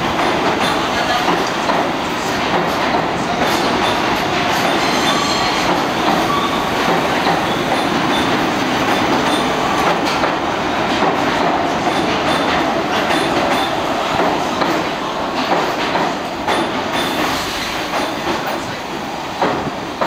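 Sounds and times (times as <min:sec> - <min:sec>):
train wheels rumbling on rails: 0:00.0 - 0:20.0
faint high wheel squeal: 0:04.8 - 0:06.7.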